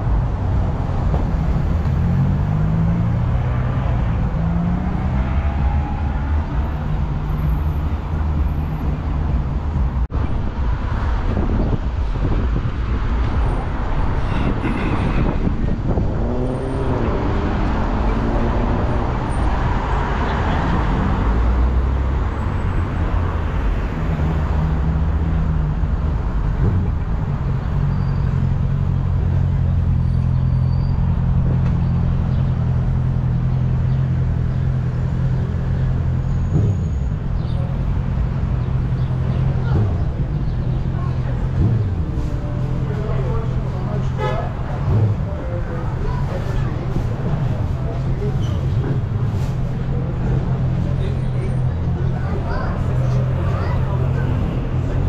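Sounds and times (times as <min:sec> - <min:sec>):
cars driving past: 0:00.0 - 0:55.0.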